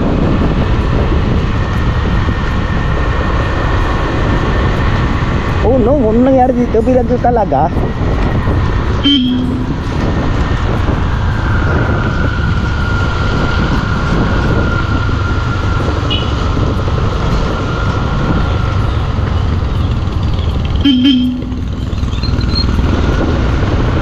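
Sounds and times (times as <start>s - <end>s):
tyre and wind noise: 0.0s - 24.0s
motorcycle engine: 7.7s - 24.0s
high beep: 9.0s - 9.8s, 20.8s - 21.7s
horn toot: 9.0s - 9.8s, 20.8s - 21.8s.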